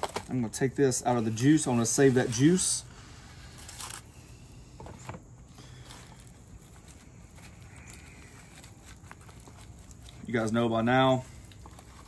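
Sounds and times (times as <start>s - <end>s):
wet pulling of meat: 5.6s - 12.0s.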